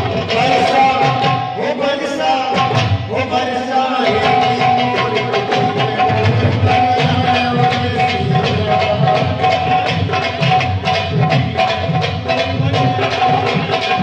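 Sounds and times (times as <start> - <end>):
person singing folk song: 0.0 - 10.2
drums and percussion: 0.0 - 14.0.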